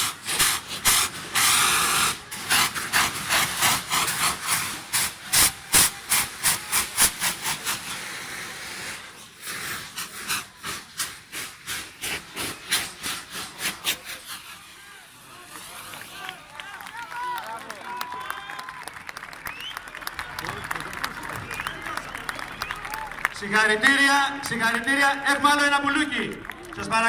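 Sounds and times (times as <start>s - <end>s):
rockets hissing: 0.0s - 16.3s.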